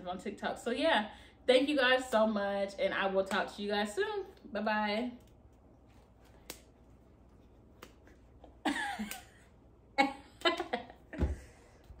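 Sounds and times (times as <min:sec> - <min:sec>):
finger snap: 0:09.0 - 0:09.4.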